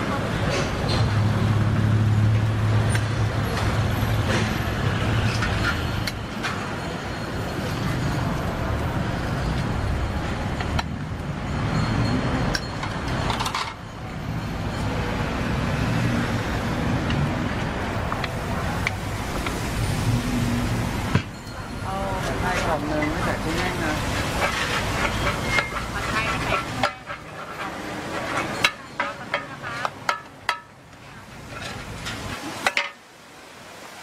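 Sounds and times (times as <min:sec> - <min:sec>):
road traffic rumble: 0:00.0 - 0:34.0
metal spatulas clinking on griddle: 0:24.3 - 0:30.8.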